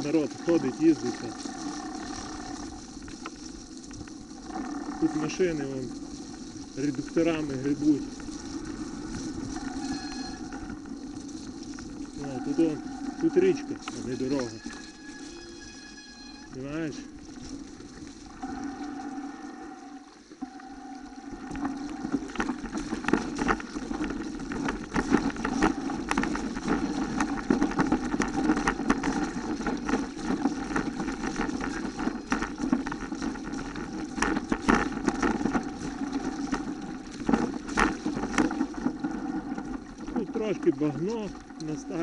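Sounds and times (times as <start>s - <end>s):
tyres rushing through mud: 0.0s - 2.7s, 12.1s - 14.6s.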